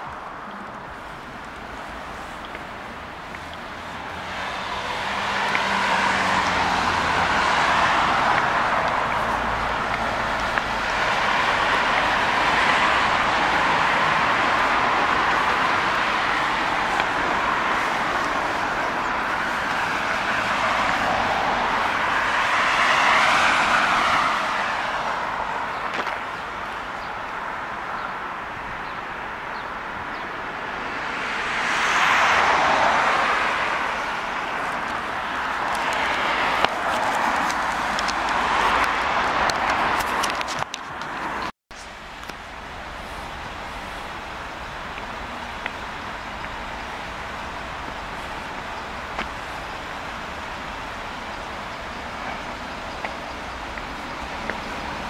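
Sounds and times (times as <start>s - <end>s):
cars passing on road: 0.0s - 55.0s.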